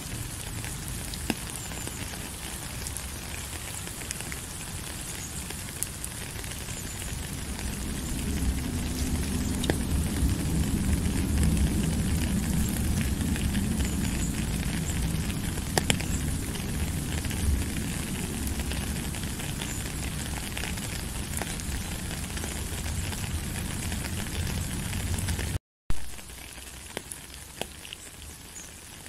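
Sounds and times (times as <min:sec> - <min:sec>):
steady rain: 0:00.0 - 0:29.0
low rumble: 0:06.3 - 0:25.6.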